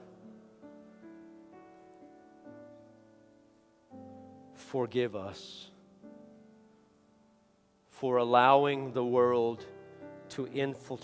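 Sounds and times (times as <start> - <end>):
soft keyboard chords: 0.0 - 11.0
person praying: 4.6 - 5.8, 7.9 - 11.0.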